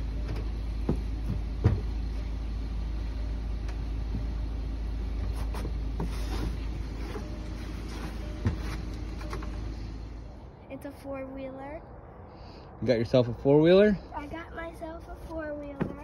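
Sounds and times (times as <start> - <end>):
steady low rumble: 0.0 - 16.0
knocks on wooden deck: 0.8 - 1.9.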